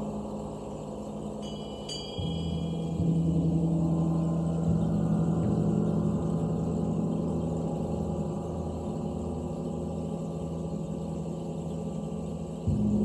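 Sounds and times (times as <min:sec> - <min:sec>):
gong ringing: 0:01.4 - 0:09.0.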